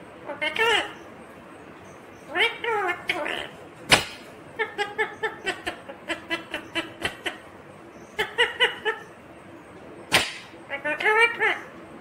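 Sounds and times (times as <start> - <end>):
parrot chattering: 0.2 - 1.1, 2.2 - 7.5, 8.1 - 9.2, 10.1 - 11.8.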